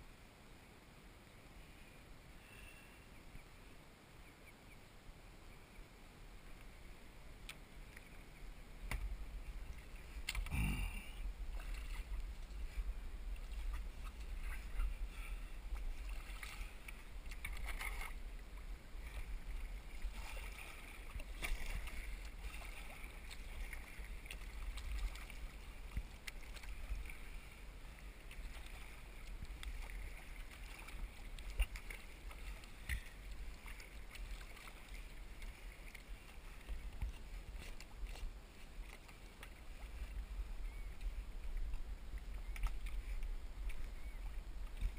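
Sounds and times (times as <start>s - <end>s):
kayak paddle splashing: 6.4s - 44.9s
wind rumble on microphone: 8.0s - 44.9s
water slapping against hull: 11.4s - 38.2s.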